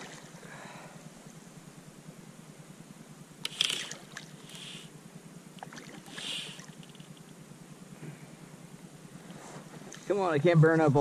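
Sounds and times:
fish splashing water: 5.6s - 6.8s.

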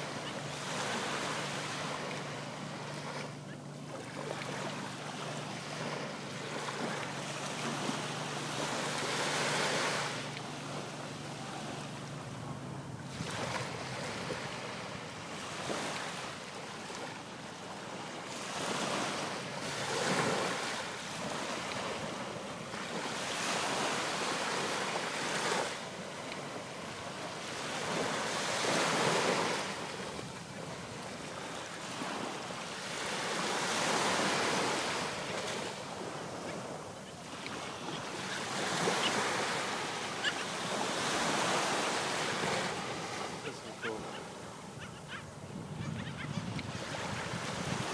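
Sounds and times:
surf washing up beach: 0.0s - 47.9s.

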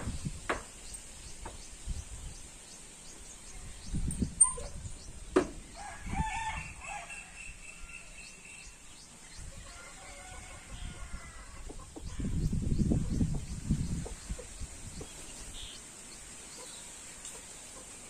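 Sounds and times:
rooster crowing: 5.7s - 8.2s, 9.6s - 11.6s.

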